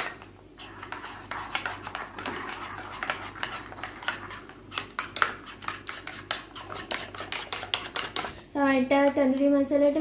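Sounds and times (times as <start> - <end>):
metal spoon scraping ceramic bowl: 0.6 - 8.4.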